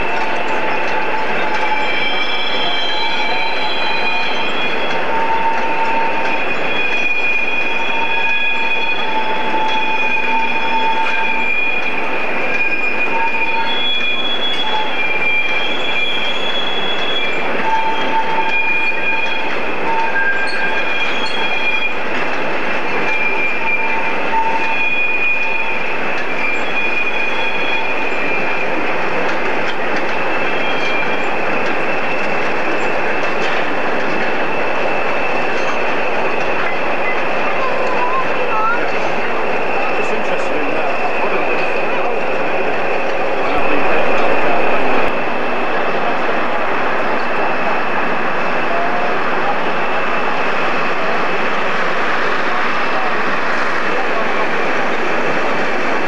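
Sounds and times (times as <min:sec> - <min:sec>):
train rolling rumble: 0:00.0 - 0:56.0
train wheels squealing: 0:00.0 - 0:56.0.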